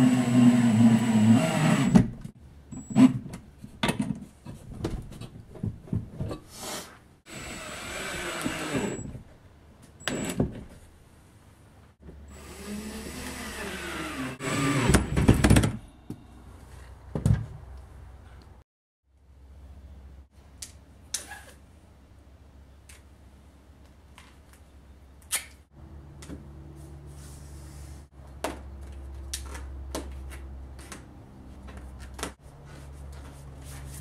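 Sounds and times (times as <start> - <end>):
cordless drill driving screws: 0.0 - 2.0, 7.3 - 9.0, 12.3 - 15.1
parts knocking and clattering: 3.2 - 6.5.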